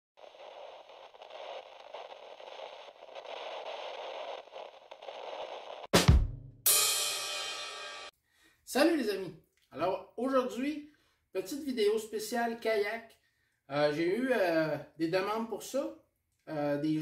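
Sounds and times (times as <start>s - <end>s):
static-like hissing: 0.2s - 6.0s
heavy drum hit: 6.0s - 7.7s.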